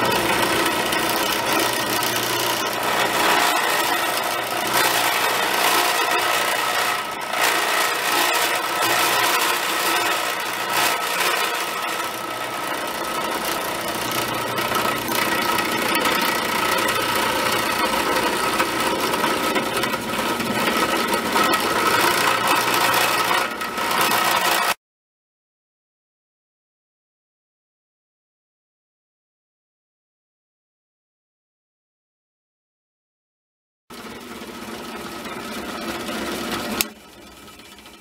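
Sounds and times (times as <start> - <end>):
cutter grinding metal: 0.0 - 24.8, 33.9 - 38.0
spindle motor hum: 0.0 - 24.8, 33.9 - 38.0.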